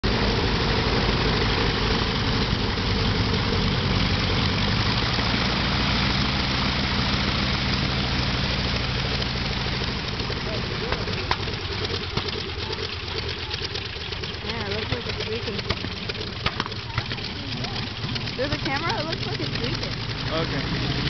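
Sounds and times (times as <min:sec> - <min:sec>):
propeller engine droning: 0:00.0 - 0:21.0.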